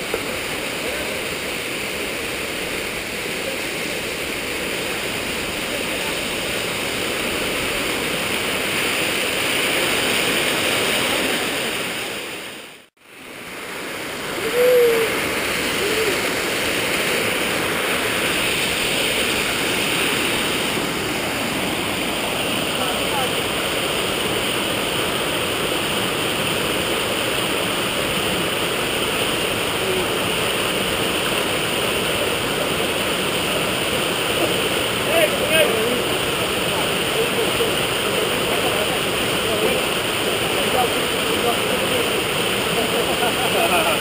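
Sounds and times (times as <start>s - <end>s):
waterfall and stream rushing: 0.0s - 44.0s
rising and falling call: 14.2s - 17.1s.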